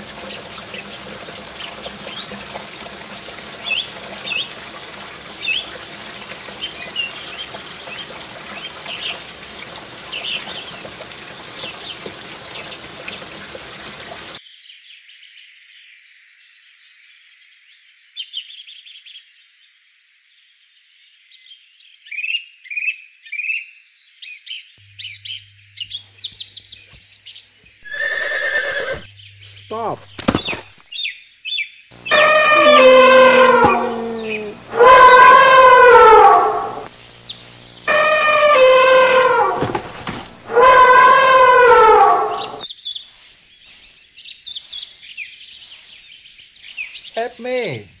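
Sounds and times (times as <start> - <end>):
rushing water from toy pump: 0.0 - 14.4, 37.9 - 41.6
birds chirping: 24.8 - 48.0.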